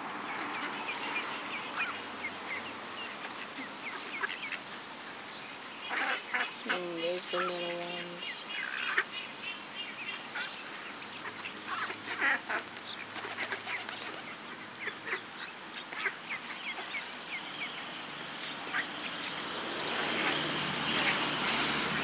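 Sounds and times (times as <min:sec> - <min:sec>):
ducks quacking: 0:00.3 - 0:04.7, 0:05.8 - 0:22.0.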